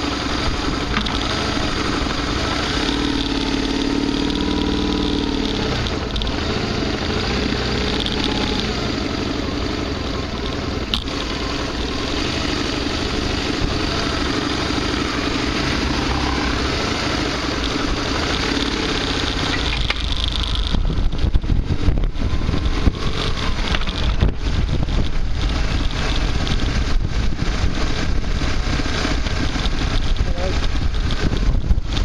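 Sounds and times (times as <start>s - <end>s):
motorcycle engine running: 0.0s - 32.0s
wind rumbling on microphone: 0.0s - 32.0s.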